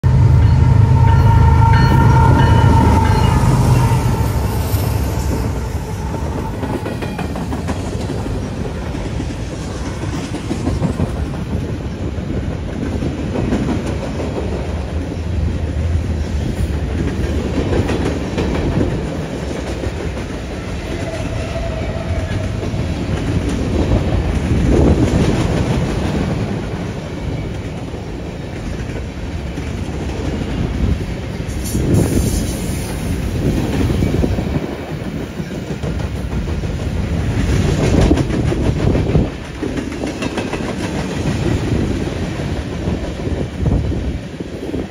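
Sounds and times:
train horn: 0:00.0 - 0:07.3, 0:20.6 - 0:22.8
locomotive engines rumbling: 0:00.0 - 0:12.3
steel wheels roaring on rail: 0:00.0 - 0:44.9
wheels clickety-clack: 0:06.4 - 0:15.2, 0:16.4 - 0:44.1.

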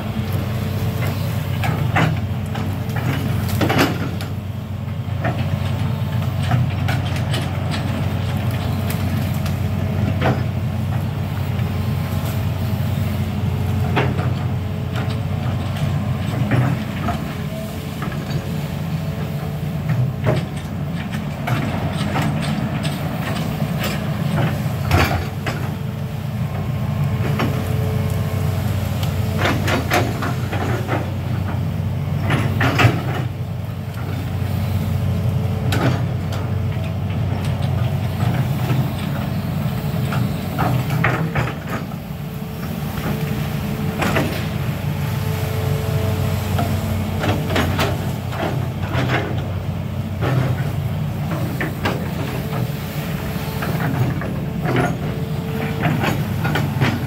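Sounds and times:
diesel engine running: 0:00.0 - 0:57.0
excavator bucket knocks and clanks: 0:01.6 - 0:04.4, 0:19.9 - 0:25.8, 0:29.3 - 0:33.4.

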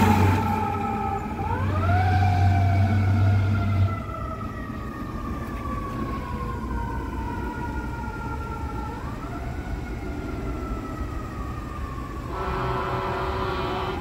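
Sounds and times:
loud low drone: 0:00.0 - 0:04.2
fire truck siren wailing: 0:00.0 - 0:14.0.

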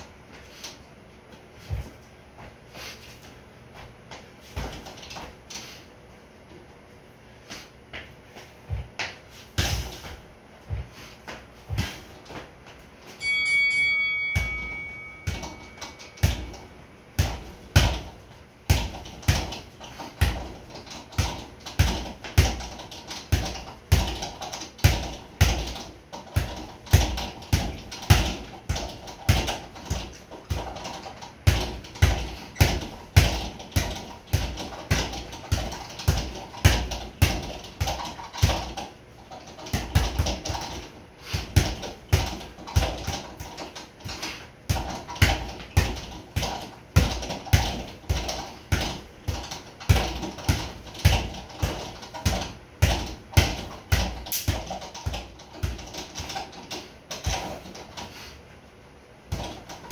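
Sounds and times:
boxing gloves striking a punching bag: 0:04.5 - 0:05.2, 0:08.7 - 0:10.9, 0:11.6 - 0:12.4, 0:13.9 - 0:58.0, 0:59.3 - 0:59.9
short ringing tone: 0:13.2 - 0:16.7.

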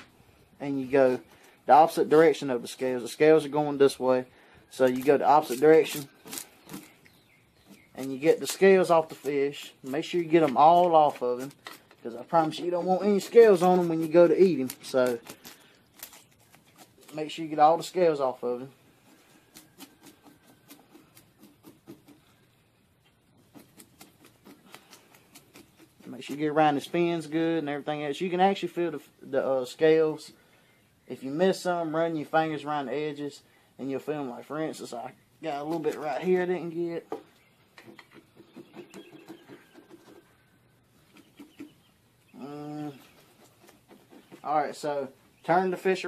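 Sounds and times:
spoon scraping fish scales: 0:07.7 - 0:17.8, 0:19.0 - 0:22.4, 0:42.8 - 0:44.8
chickens clucking: 0:37.8 - 0:40.3, 0:41.0 - 0:44.4
light scrapes: 0:42.5 - 0:45.2.

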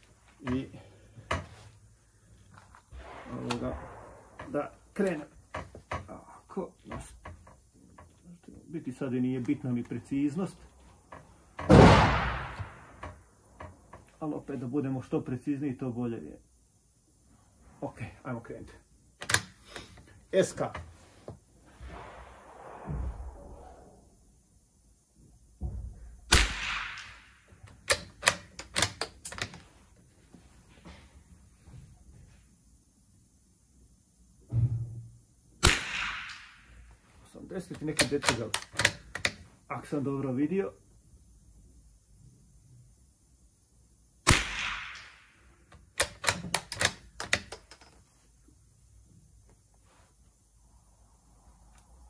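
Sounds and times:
rifle shot: 0:11.7 - 0:12.9, 0:26.3 - 0:27.4, 0:35.6 - 0:36.7, 0:44.2 - 0:45.3
rifle bolt clicking: 0:19.2 - 0:19.5, 0:27.7 - 0:29.6, 0:37.8 - 0:39.4, 0:45.8 - 0:47.9
dull thump: 0:34.5 - 0:35.1.

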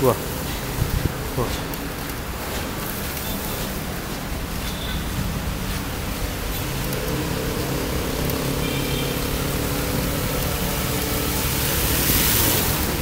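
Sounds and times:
bike tyres hissing on wet road: 0:00.0 - 0:13.0
wind over microphone: 0:00.3 - 0:06.6.

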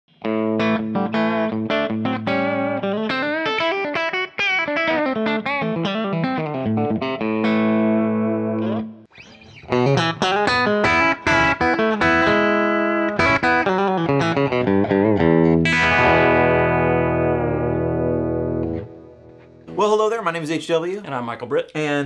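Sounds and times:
electric guitar melody: 0:00.1 - 0:20.2.

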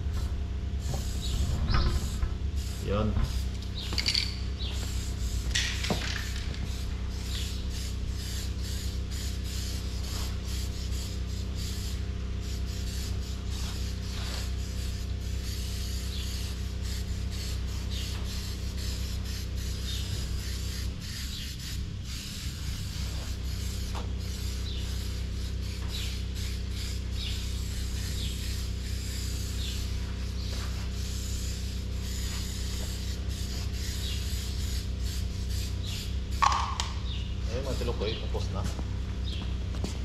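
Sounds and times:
low machine hum: 0:00.0 - 0:40.0
spray cans hissing: 0:00.8 - 0:38.5.

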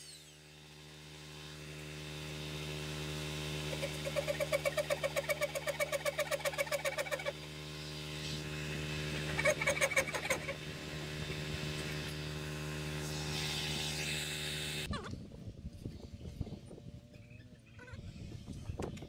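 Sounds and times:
low machine hum: 0:00.0 - 0:19.0
hand saw cutting wood: 0:02.9 - 0:14.9.

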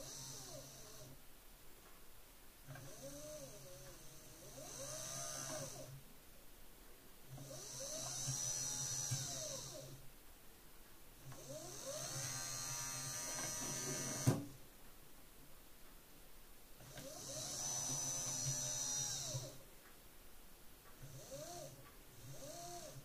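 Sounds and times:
electric motor whine: 0:00.0 - 0:01.2, 0:02.7 - 0:06.0, 0:07.3 - 0:10.0, 0:11.3 - 0:14.4, 0:16.8 - 0:19.6.

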